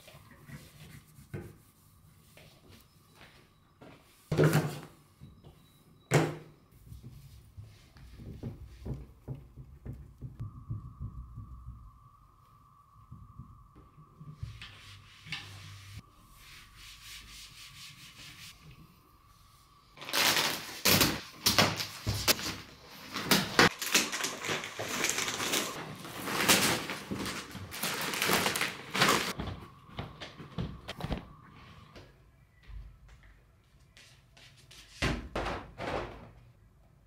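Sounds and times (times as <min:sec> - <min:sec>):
plastic wrapping crinkling: 0:20.0 - 0:29.4.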